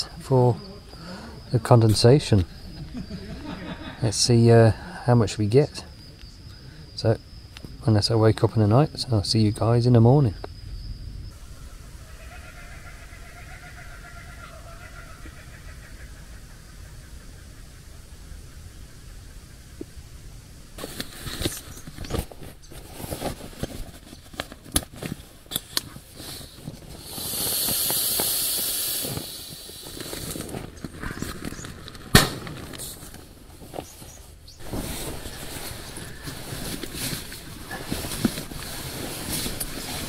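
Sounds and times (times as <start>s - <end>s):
sleeping bag rustling: 20.8s - 40.0s
high hiss: 26.1s - 30.6s.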